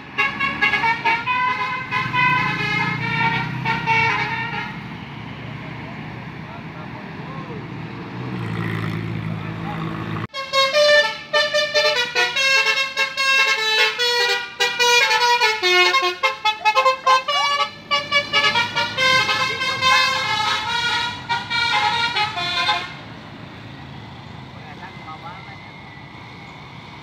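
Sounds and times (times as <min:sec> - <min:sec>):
musical bus horn melody: 0:00.0 - 0:04.9, 0:10.3 - 0:23.1
road traffic noise: 0:00.0 - 0:27.0.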